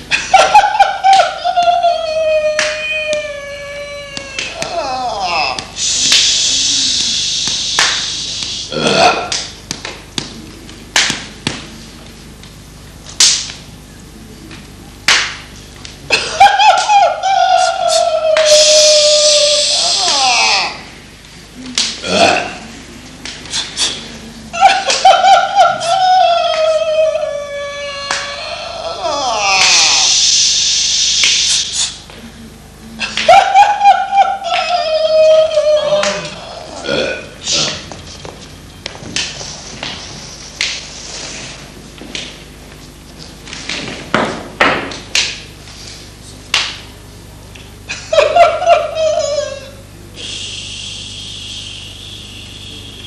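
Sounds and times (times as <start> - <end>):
person laughing loudly: 0.1 - 2.5, 16.1 - 20.8, 24.5 - 27.4, 33.0 - 36.9, 47.9 - 49.8
high-pitched laughing cry: 0.1 - 5.8, 16.1 - 20.9, 24.5 - 30.2, 33.0 - 37.0, 47.9 - 49.8.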